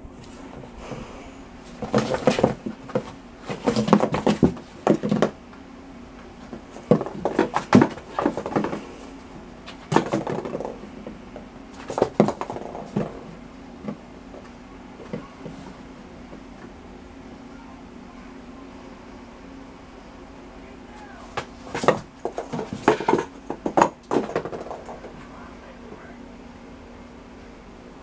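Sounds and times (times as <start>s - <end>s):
cat scratching cardboard box: 1.7s - 5.4s, 6.4s - 9.0s, 9.7s - 14.0s, 21.3s - 24.6s.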